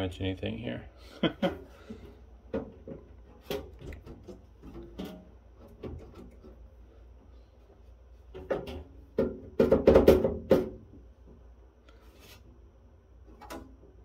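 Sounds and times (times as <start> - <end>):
sheet-metal cover rattling and scraping: 2.5 - 6.7, 8.3 - 10.8.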